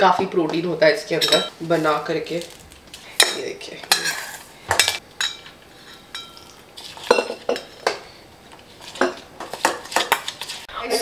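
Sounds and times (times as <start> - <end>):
metal spoon clinking in steel container: 1.2 - 1.5.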